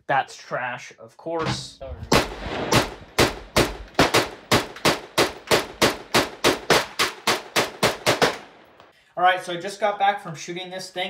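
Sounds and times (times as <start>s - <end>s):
rapid pistol shots with echo: 2.1s - 8.7s.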